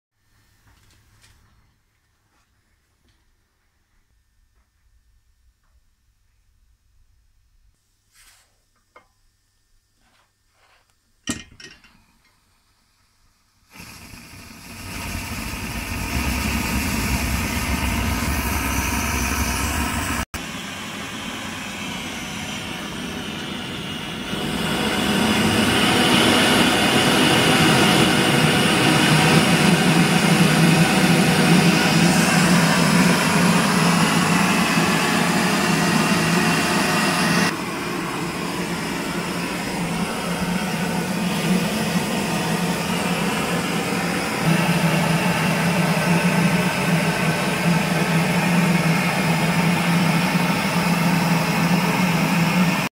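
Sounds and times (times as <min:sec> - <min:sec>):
blowtorch flame rushing: 0:13.7 - 0:52.9.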